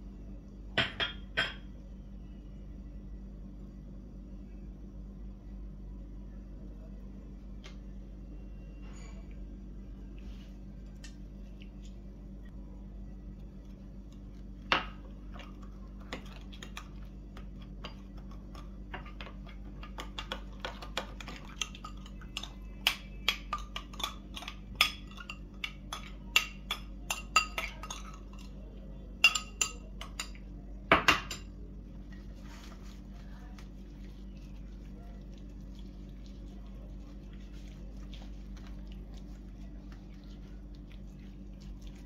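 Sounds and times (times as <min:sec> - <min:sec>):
steady low hum: 0:00.0 - 0:42.0
metal spoon clinking on glass bowl: 0:29.2 - 0:30.4.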